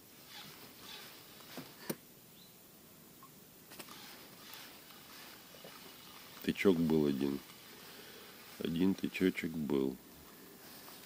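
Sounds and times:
soft rustling: 3.7s - 11.0s.

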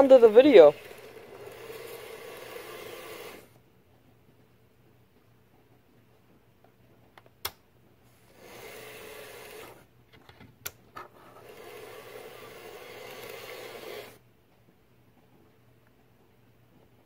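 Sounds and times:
toy train running on track: 0.0s - 3.5s, 8.3s - 9.8s, 11.2s - 14.2s.

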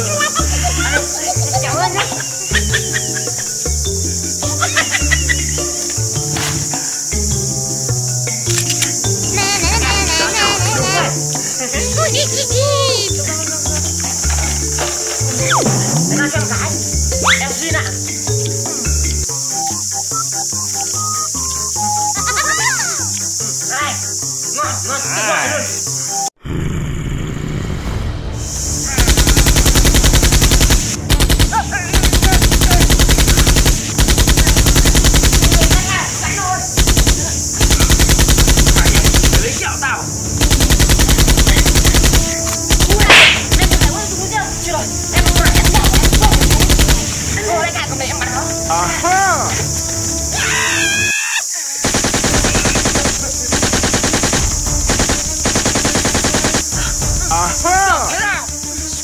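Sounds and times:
automatic gunfire bursts: 29.0s - 36.0s, 36.8s - 39.6s, 40.4s - 44.0s, 45.2s - 47.1s, 51.8s - 56.7s
machine-gun fire: 29.0s - 36.0s, 36.8s - 39.6s, 40.3s - 44.0s, 45.2s - 47.2s, 51.8s - 56.7s.

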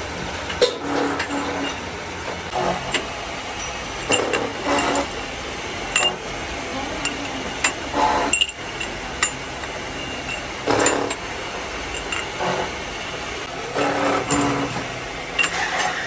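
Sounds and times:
factory machine noise: 0.0s - 16.0s
metal rods clinking: 0.5s - 1.9s, 2.5s - 5.1s, 5.9s - 16.0s
metal clatters: 13.7s - 16.0s.

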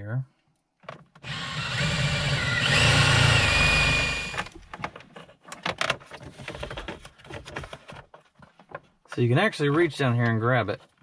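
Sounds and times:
cordless drill boring plastic: 1.2s - 4.6s.

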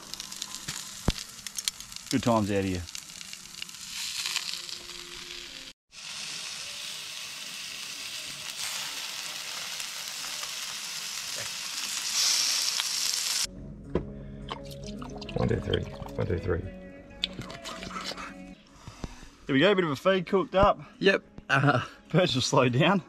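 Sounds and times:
food sizzling on barbecue hotplate: 0.0s - 13.5s
music: 4.5s - 12.3s, 13.5s - 23.0s.

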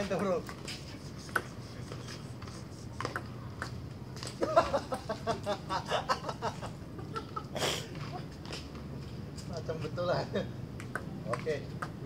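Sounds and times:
man laughing: 4.4s - 7.9s.

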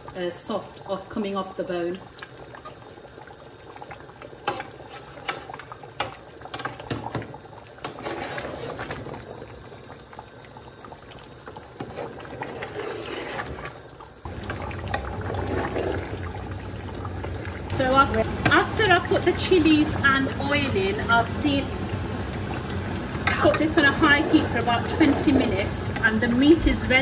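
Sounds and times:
thick curry bubbling: 2.0s - 19.4s
metal ladle scraping pot: 4.4s - 5.6s, 7.8s - 9.1s, 11.8s - 13.8s, 15.2s - 16.2s.

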